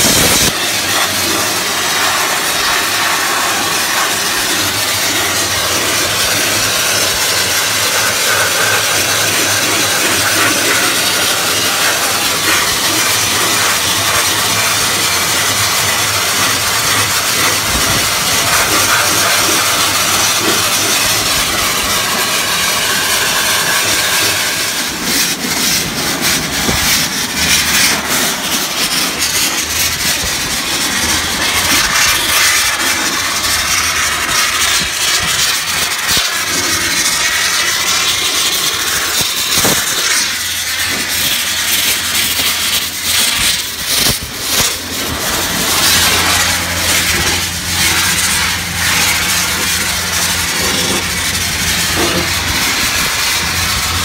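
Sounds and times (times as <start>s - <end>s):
pressurised water spray hiss: 0.0s - 54.0s
low machine hum: 40.2s - 54.0s.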